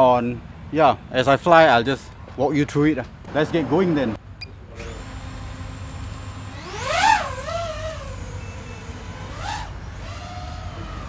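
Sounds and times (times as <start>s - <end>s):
drone motors whining: 4.7s - 11.0s.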